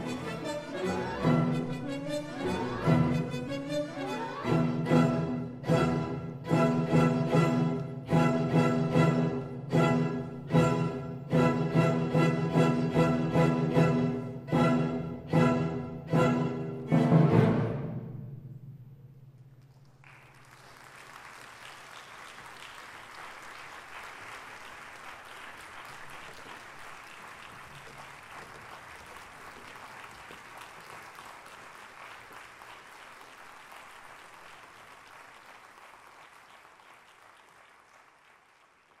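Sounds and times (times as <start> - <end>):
audience applauding: 19.7 - 39.0.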